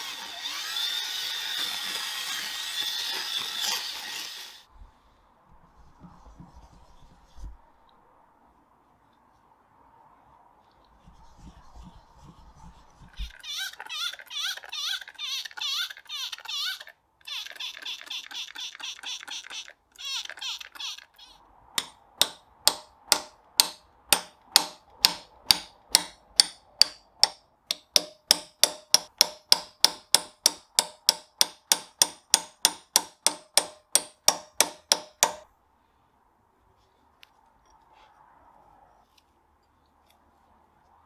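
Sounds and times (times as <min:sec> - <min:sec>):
tool scraping rust off metal: 0:21.8 - 0:35.4.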